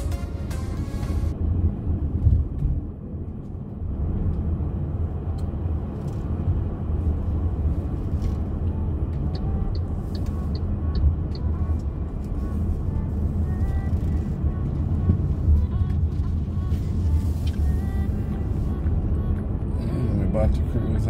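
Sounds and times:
background music: 0.0 - 1.4
engine and tyre rumble: 0.0 - 21.0
turn signal clicking: 8.2 - 12.4, 13.6 - 19.7.

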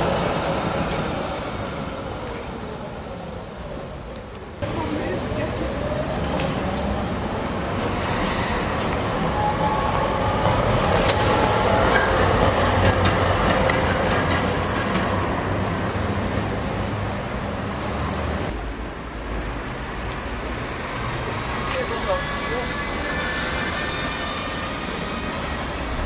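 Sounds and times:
street traffic: 0.0 - 26.0
tram wheels rumbling on rails: 0.0 - 26.0
wheels clicking over rail joints: 3.7 - 8.0, 10.0 - 15.8.

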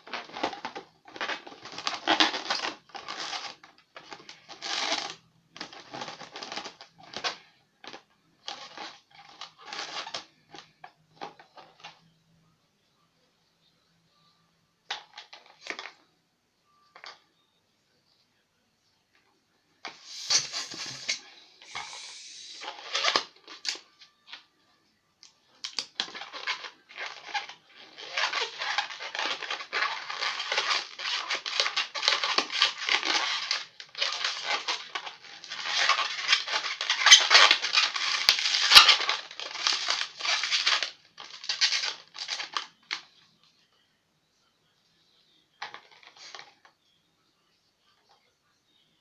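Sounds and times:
balloon squeaking and rubbing: 0.0 - 7.4, 8.5 - 10.7, 19.9 - 23.4, 26.0 - 42.4.

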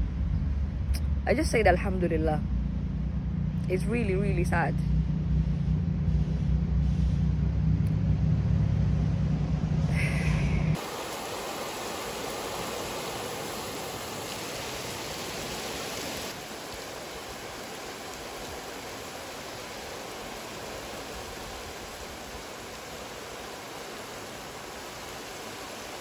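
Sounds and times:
low rumble: 0.0 - 10.8
steady rushing noise: 0.0 - 26.0.

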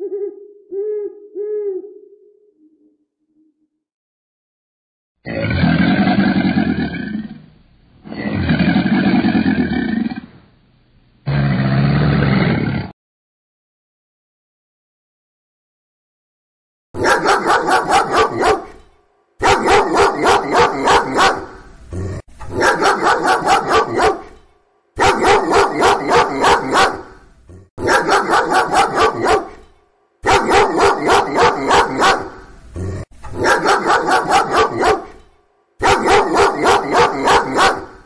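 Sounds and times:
dog barking: 17.0 - 21.7, 22.5 - 24.4, 25.0 - 27.2, 27.8 - 32.5, 33.2 - 38.0.

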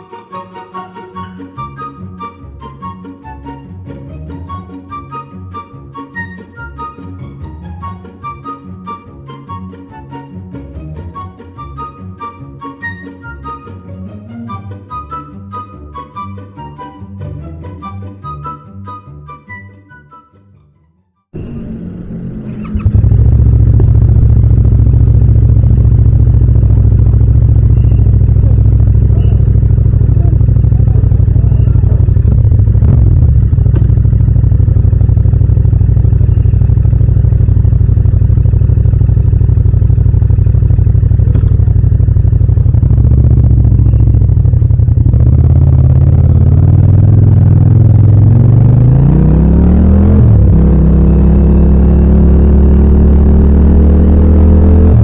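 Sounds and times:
motorcycle engine idling: 21.4 - 55.0.

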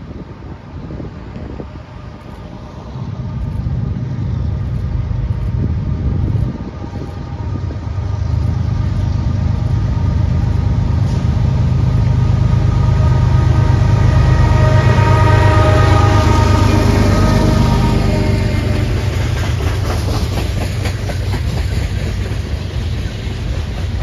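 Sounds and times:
diesel locomotive engines rumbling: 0.0 - 24.0
high whine: 2.1 - 19.4.

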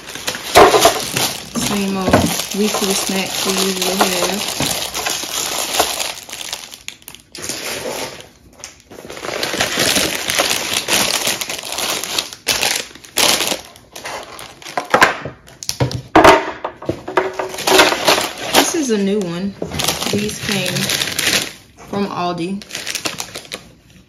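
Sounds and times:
cardboard packaging rustling: 0.0 - 15.7, 16.9 - 24.0.

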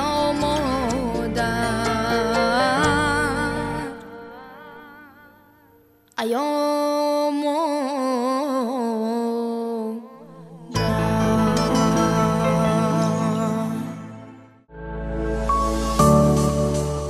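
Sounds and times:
background music: 0.0 - 6.2, 10.4 - 17.0
music with heavy bass: 14.7 - 17.0.

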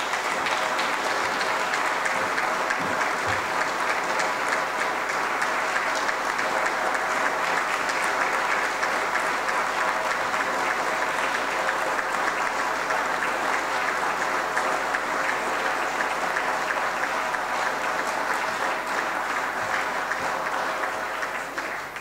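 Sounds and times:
audience applauding: 0.0 - 22.0.

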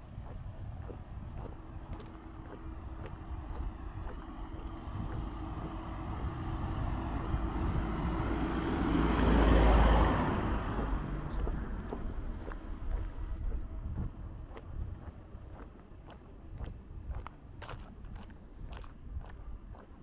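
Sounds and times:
vehicle driving past: 2.2 - 13.3.

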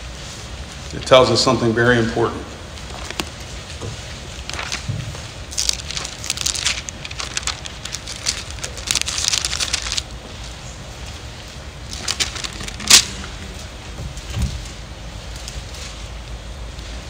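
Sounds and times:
thin pages turning: 2.8 - 10.1, 11.9 - 13.2.

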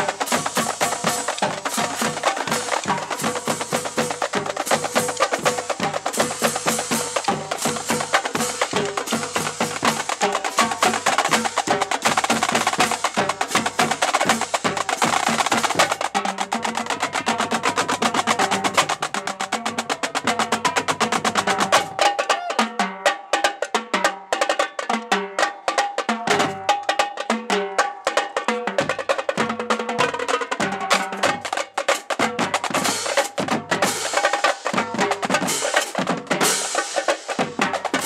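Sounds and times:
pitched bass drums: 0.0 - 22.5
snare drums: 0.0 - 38.0
tenor drums: 0.0 - 38.0.

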